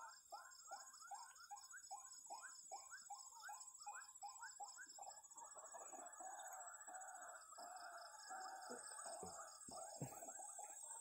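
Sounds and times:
frogs calling: 0.0s - 11.0s.

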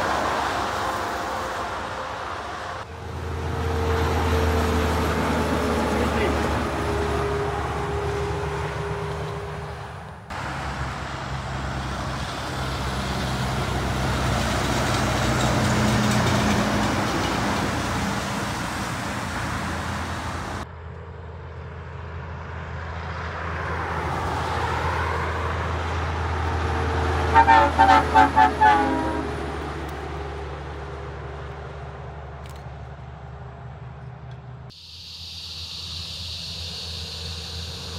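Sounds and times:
tyre and road noise: 0.0s - 34.8s
diesel truck engine hum: 0.0s - 37.9s.

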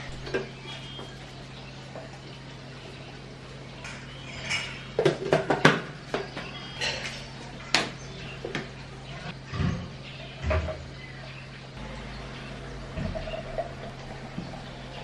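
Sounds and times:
steady low hum: 5.9s - 15.0s.

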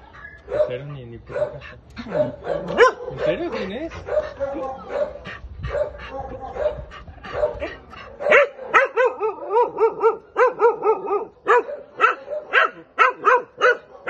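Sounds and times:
dog yelping: 0.1s - 14.0s.

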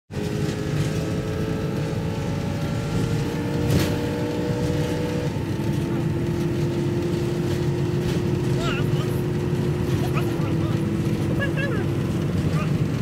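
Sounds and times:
car engine and road noise: 0.1s - 13.0s.

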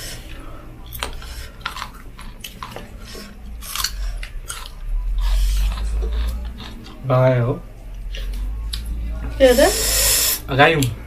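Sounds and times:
person chewing food: 0.2s - 7.1s.

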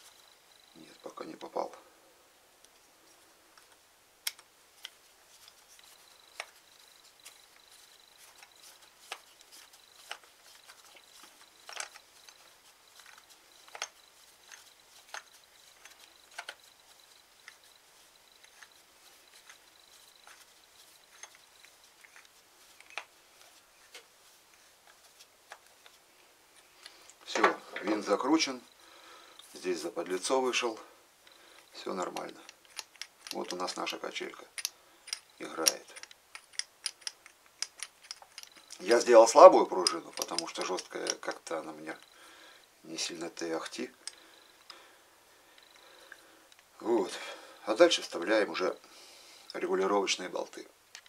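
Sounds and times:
faint high whine: 0.0s - 36.2s
screwdriver clicking and scraping metal: 4.2s - 17.8s, 32.0s - 33.8s, 34.4s - 39.0s, 39.7s - 42.1s.

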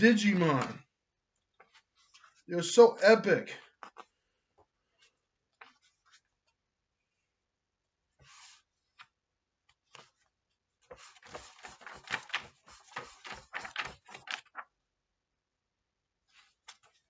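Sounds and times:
book pages flipping: 1.4s - 2.5s, 3.7s - 6.6s, 8.2s - 14.7s, 16.3s - 17.0s.

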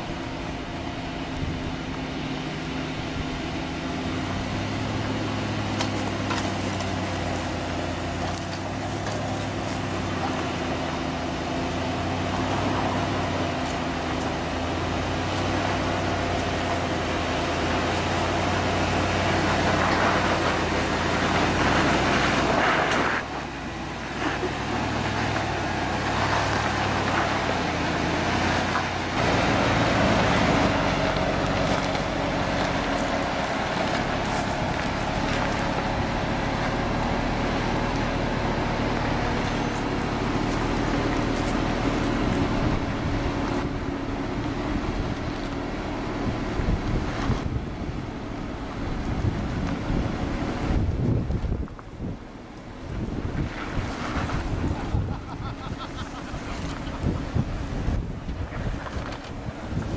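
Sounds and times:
truck engine under load: 0.0s - 59.9s.

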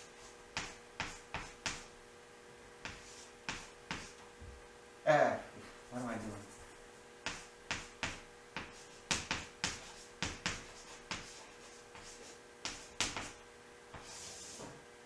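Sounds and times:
chalk scratchy stroke: 0.0s - 1.9s, 2.8s - 4.2s, 5.9s - 13.4s, 14.0s - 14.8s
chalk tapping on chalkboard: 0.0s - 1.9s, 2.8s - 4.3s, 6.0s - 14.7s.

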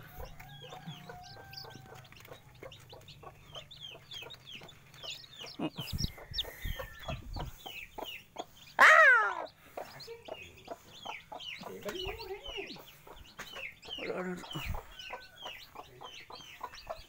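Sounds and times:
chicks peeping: 0.0s - 17.0s
hen clucking: 0.0s - 17.0s
hen squawking: 8.8s - 9.5s.

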